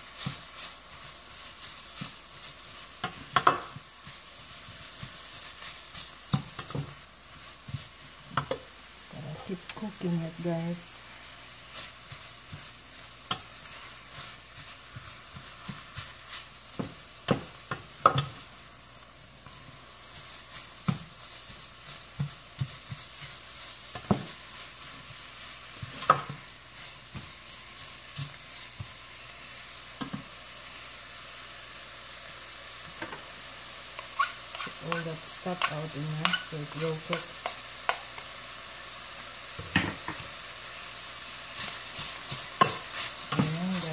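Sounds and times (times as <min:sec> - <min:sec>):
food sizzling in a skillet: 0:00.0 - 0:43.9
spatula scraping a pan: 0:33.9 - 0:38.3, 0:41.5 - 0:43.9.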